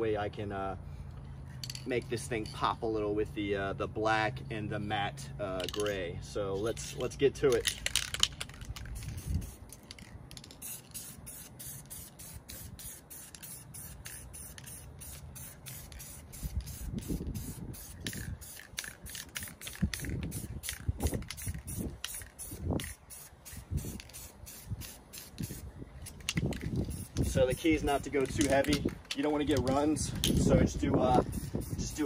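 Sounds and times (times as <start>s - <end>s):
spray paint can hissing: 6.7s - 32.0s.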